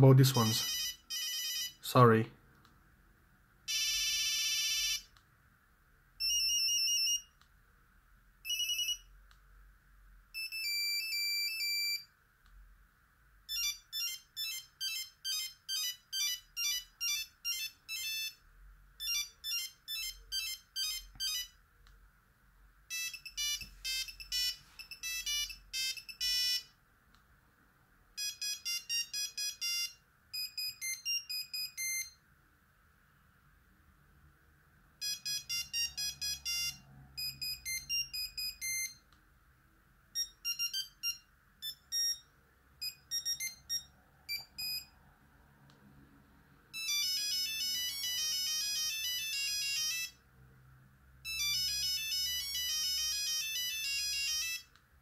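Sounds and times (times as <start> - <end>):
phone ringtone beeping tunes: 0.3 - 1.8, 3.7 - 5.1, 6.2 - 7.4, 8.4 - 9.1, 10.4 - 12.1, 13.5 - 21.6, 22.9 - 26.7, 28.2 - 32.2, 35.0 - 39.0, 40.2 - 45.0, 46.7 - 50.2, 51.2 - 54.7.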